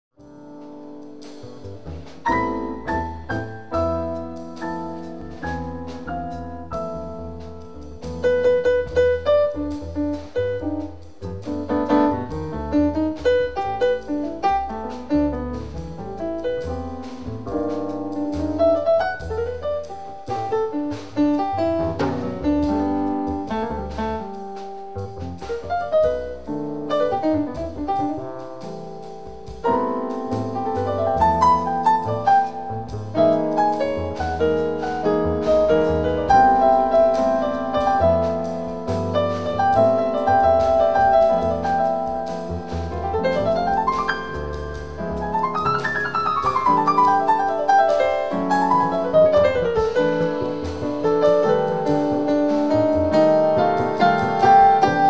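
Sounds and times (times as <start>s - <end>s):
piano playing chords and melody: 0.1s - 55.0s
drum kit with cymbal strokes: 0.2s - 55.0s
upright double bass: 0.2s - 55.0s.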